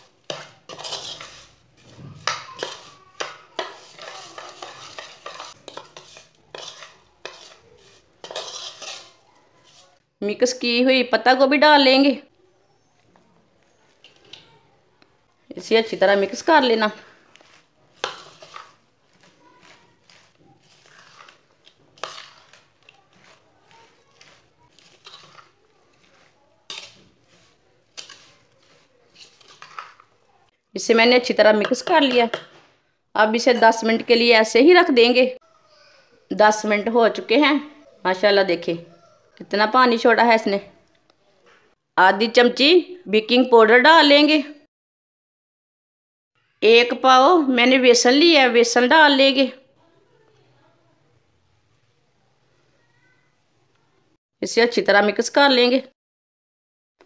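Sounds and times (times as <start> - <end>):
metal spoon scraping in bowl: 0.0 - 10.0, 16.0 - 30.2
cabbage mixture rustling: 0.0 - 10.1, 12.5 - 30.5.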